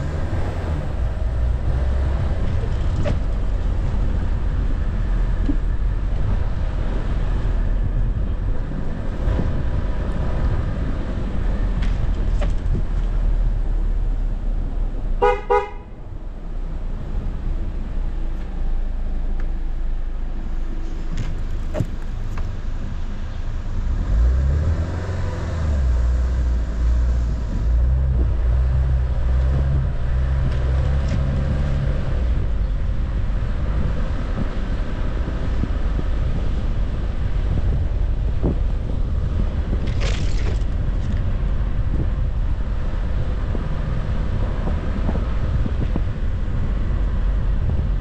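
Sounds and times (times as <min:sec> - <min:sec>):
car horn toot: 0:15.2 - 0:16.0
car driving over packed snow: 0:16.6 - 0:48.0.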